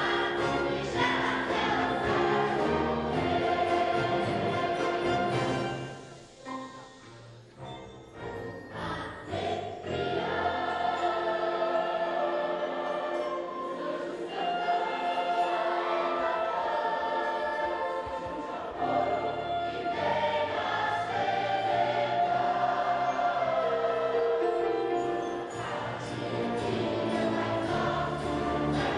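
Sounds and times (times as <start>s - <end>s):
wind band: 0.0s - 6.6s, 7.5s - 28.9s
choir singing held chords: 0.0s - 28.9s
piano: 0.0s - 28.9s.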